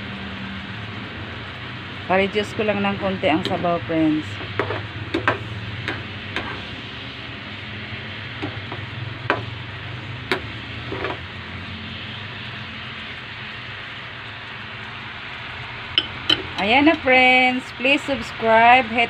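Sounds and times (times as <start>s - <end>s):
steady low hum: 0.0s - 19.0s
sauce bubbling and sizzling in pan: 4.2s - 19.0s.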